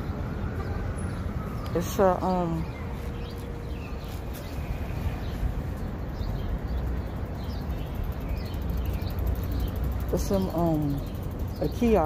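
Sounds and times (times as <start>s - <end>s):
street rumble: 0.0s - 12.0s
high bird chirps: 2.6s - 12.0s.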